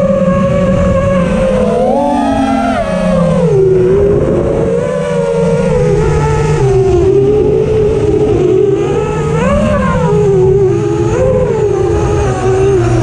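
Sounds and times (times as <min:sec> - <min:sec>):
quadcopter motors whining: 0:00.0 - 0:13.0.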